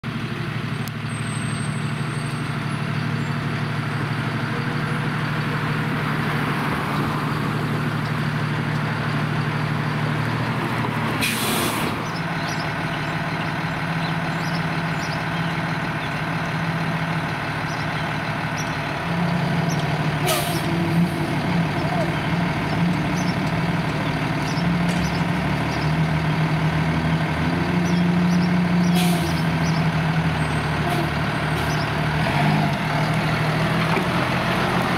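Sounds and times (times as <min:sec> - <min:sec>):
diesel engine idling: 0:00.0 - 0:34.9
air brake hisses: 0:11.2 - 0:12.0.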